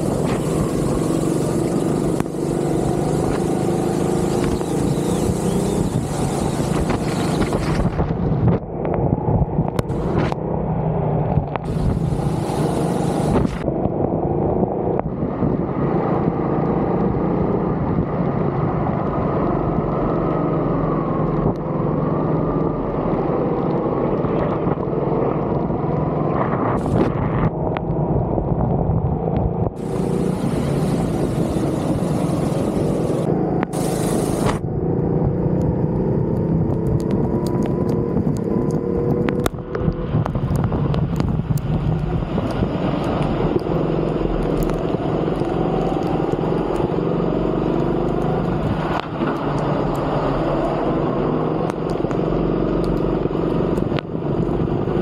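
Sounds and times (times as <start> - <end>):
high hiss: 0.0 - 7.5, 11.6 - 13.6, 29.8 - 34.6
go-kart engine revving: 0.0 - 7.9, 11.7 - 13.6, 29.8 - 36.4, 42.2 - 55.0.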